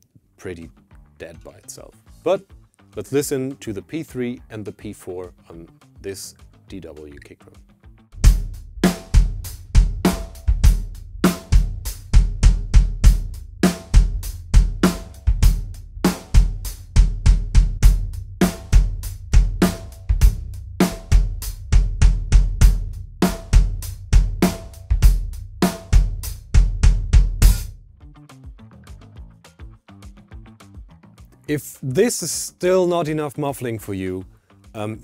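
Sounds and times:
hi-hat and cymbal strokes: 8.2 - 27.7
snare drum backbeat: 8.2 - 27.7
muffled kick drum: 8.2 - 27.8.

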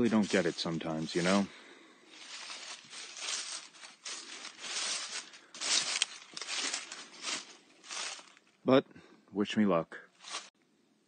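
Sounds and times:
pushing through dry brush: 0.0 - 8.4, 10.2 - 10.5.

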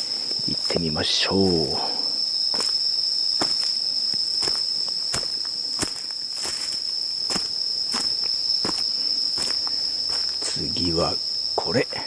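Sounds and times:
night insects singing: 0.0 - 12.0
footsteps on dry leaves: 2.4 - 10.6.

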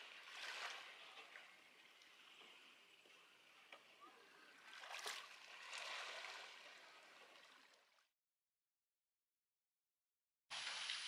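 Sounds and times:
small waves lapping on shore: 0.0 - 8.0.

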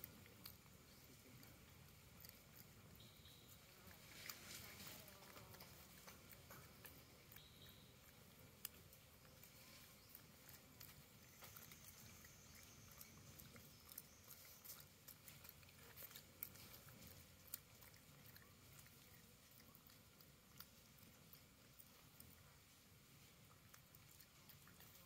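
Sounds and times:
faint clicks and crackles: 0.0 - 25.0
faint high steady tone: 7.2 - 8.2.

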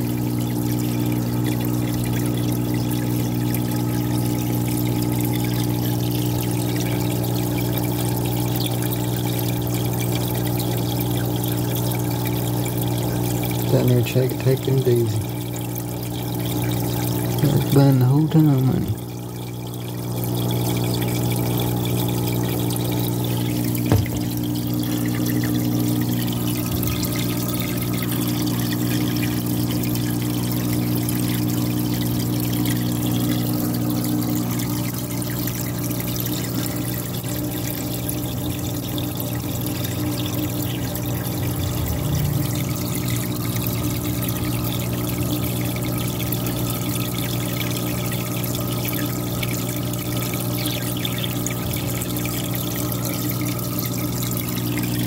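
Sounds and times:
pump motor hum: 0.0 - 55.0
water pouring and trickling: 0.0 - 55.0
brief knock: 23.9 - 24.3.

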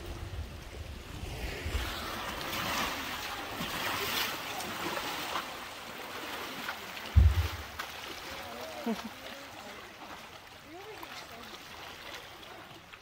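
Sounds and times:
river water splashing: 0.0 - 13.0
loud low thump: 7.2 - 7.8.

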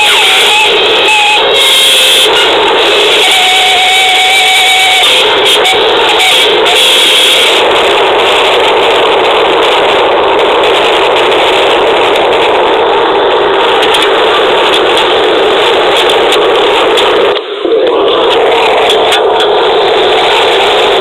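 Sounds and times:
dense noise wash: 0.0 - 21.0.

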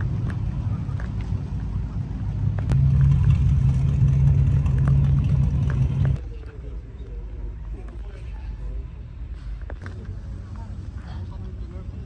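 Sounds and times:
car engine low rumble: 0.0 - 6.3.

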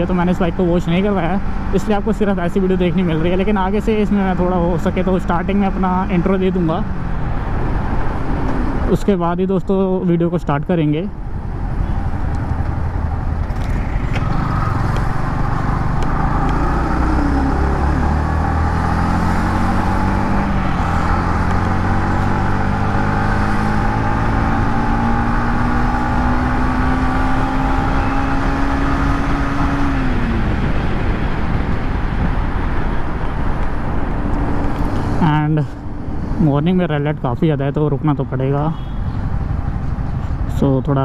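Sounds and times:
motorcycle engine accelerating: 11.4 - 36.7
wind rush: 27.8 - 36.5.

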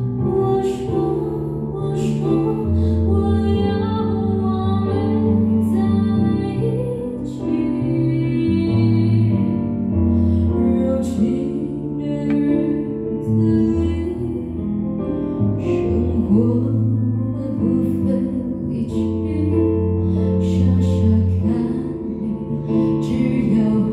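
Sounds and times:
keyboard chords and bass notes: 0.0 - 5.1
woman singing into a microphone: 0.0 - 14.9, 15.6 - 23.9.

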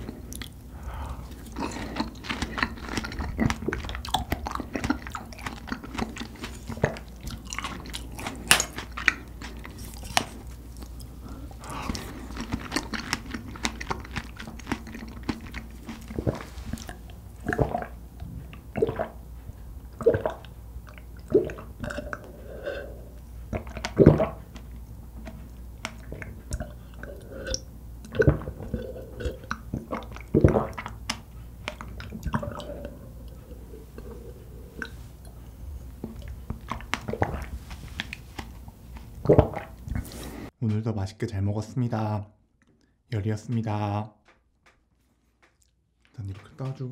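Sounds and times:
mouth eating sounds with wet clicks: 0.0 - 40.2
loud swallowing gulps: 0.0 - 40.5.

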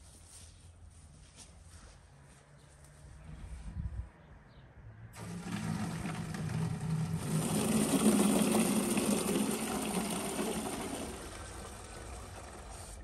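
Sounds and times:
hose water jetting into a can: 5.2 - 13.0.

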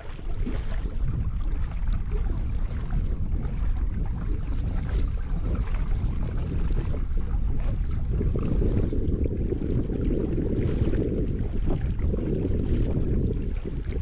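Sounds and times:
paddle splashing water: 0.0 - 14.0
water running along hull: 0.0 - 14.0
wind rumble on microphone: 0.0 - 14.0.

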